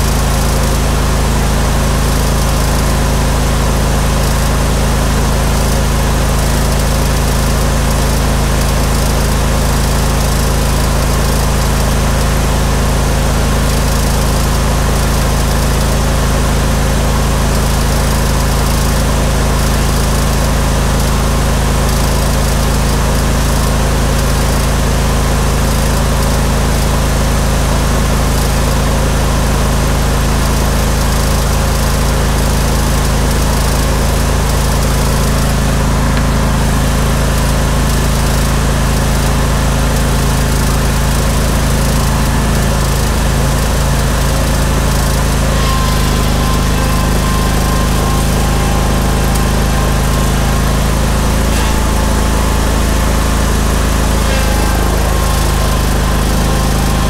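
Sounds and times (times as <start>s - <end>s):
engine running steadily: 0.0s - 57.0s
faint high tone: 45.2s - 57.0s.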